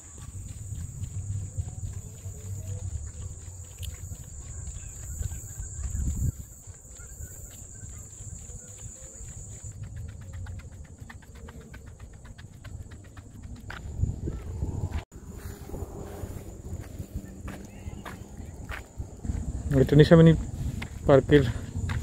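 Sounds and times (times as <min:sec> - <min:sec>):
low rumble on microphone: 0:00.0 - 0:06.4, 0:12.2 - 0:22.0
footsteps on paved path: 0:00.0 - 0:22.0
insects buzzing: 0:00.0 - 0:22.0.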